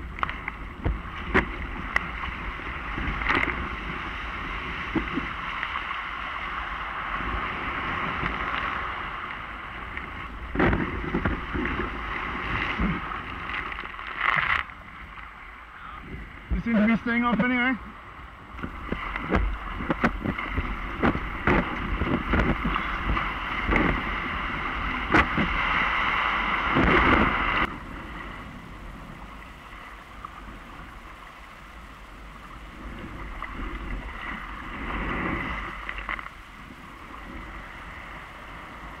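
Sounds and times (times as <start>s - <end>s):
paddle strokes knocking and splashing: 0.0s - 15.3s, 18.5s - 28.2s
water lapping: 0.0s - 39.0s
water splashing around a kayak: 0.0s - 39.0s.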